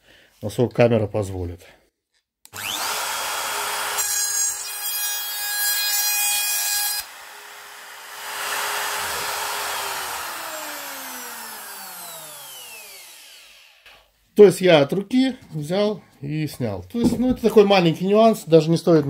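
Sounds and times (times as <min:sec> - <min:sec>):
router motor winding down: 0:02.5 - 0:04.1, 0:07.0 - 0:14.1
router cutting wood: 0:02.5 - 0:14.1.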